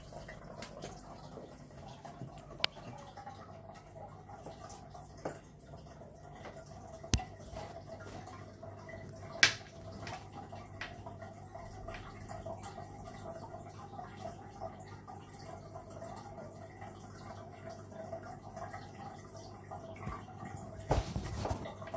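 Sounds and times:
water trickling and dripping: 0:00.0 - 0:21.9.

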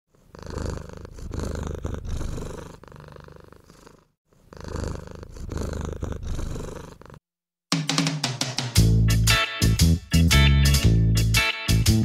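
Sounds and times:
cat purring: 0:00.1 - 0:07.2.

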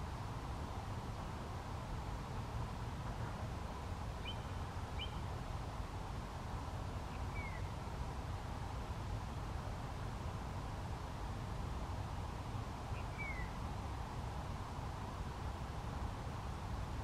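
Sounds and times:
faint bird chirps: 0:04.2 - 0:05.3, 0:07.1 - 0:07.8, 0:12.9 - 0:13.6.

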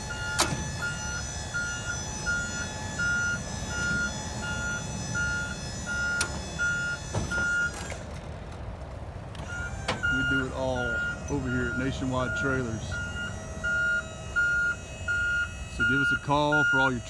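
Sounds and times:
truck warning beeper: 0:00.0 - 0:08.0, 0:09.4 - 0:17.0
truck engine idling: 0:00.0 - 0:17.0
metal clunks: 0:00.2 - 0:00.8, 0:06.1 - 0:08.6, 0:09.3 - 0:10.1.

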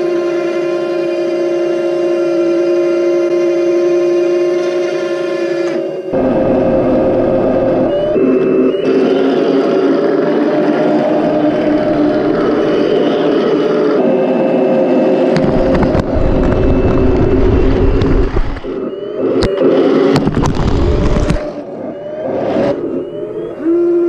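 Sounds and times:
loud low rumble of tracks: 0:00.0 - 0:24.0
short rising whines: 0:00.0 - 0:24.0
toy tank engine hum: 0:00.0 - 0:24.0.

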